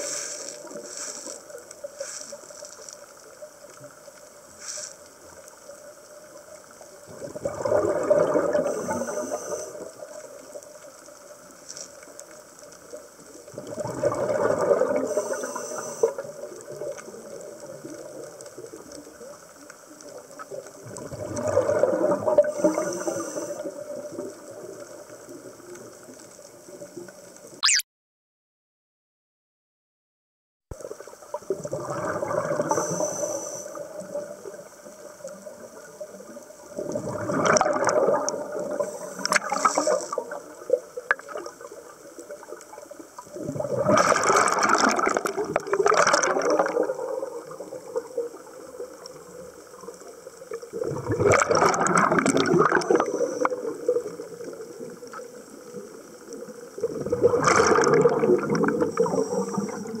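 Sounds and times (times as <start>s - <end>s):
bubbles gurgling underwater: 6.9s - 10.6s, 13.2s - 19.4s, 20.1s - 25.9s, 30.8s - 33.0s, 33.7s - 60.0s
diver breathing through regulator: 15.0s - 16.2s, 22.4s - 23.8s, 32.6s - 33.8s, 38.7s - 40.2s, 58.8s - 60.0s.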